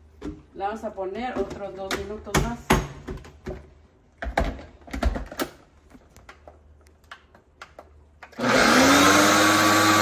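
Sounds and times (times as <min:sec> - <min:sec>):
blender motor running: 0:08.4 - 0:10.0.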